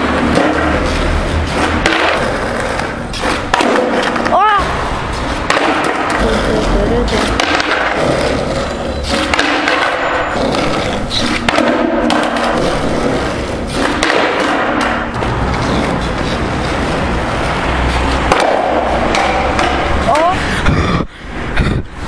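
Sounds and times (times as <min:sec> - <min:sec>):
skateboard clacks and knocks: 0:00.0 - 0:21.8
skateboard wheels rolling on asphalt: 0:00.0 - 0:22.0.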